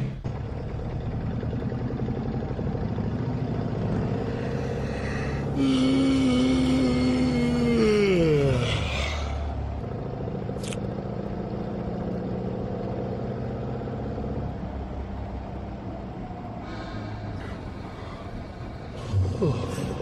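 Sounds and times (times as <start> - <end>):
vehicle engine hum: 0.0 - 20.0
man yawning: 4.4 - 9.5, 18.9 - 20.0.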